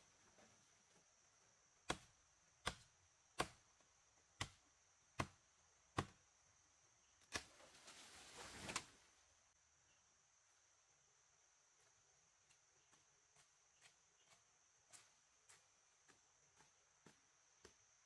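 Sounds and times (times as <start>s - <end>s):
wood being chopped with a blade: 1.8s - 6.3s, 7.2s - 7.6s
rustling: 7.4s - 9.1s.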